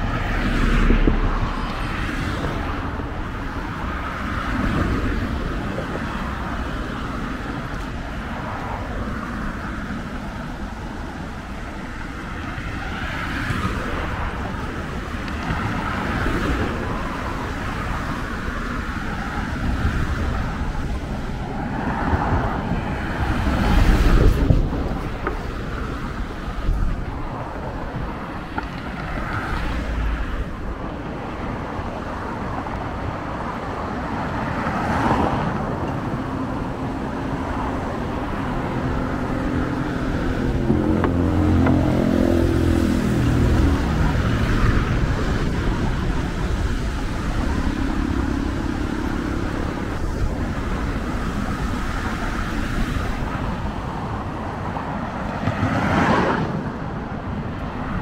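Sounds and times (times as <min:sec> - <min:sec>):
cars passing: 0:00.0 - 0:58.0
loud engine passing: 0:34.9 - 0:51.8.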